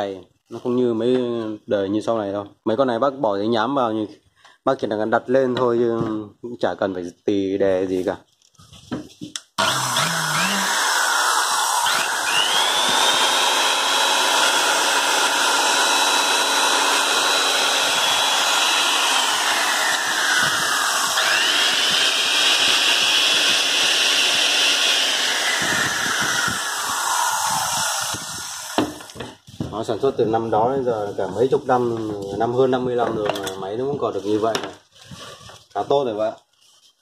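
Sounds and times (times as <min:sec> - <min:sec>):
belt sander motor whine: 0:09.6 - 0:29.2.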